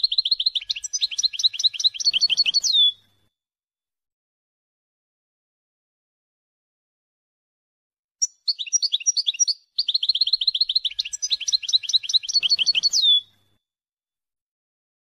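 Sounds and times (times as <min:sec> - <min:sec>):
goldfinch song chirps: 0:00.0 - 0:03.2, 0:08.2 - 0:13.6.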